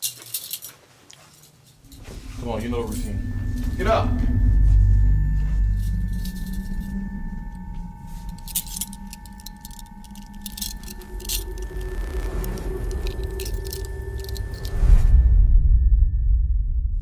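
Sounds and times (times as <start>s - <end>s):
keys jangling: 0.0s - 2.1s, 5.7s - 14.8s
hissing swell: 1.8s - 15.2s
held tone: 1.8s - 17.0s
low steady drone: 1.8s - 17.0s.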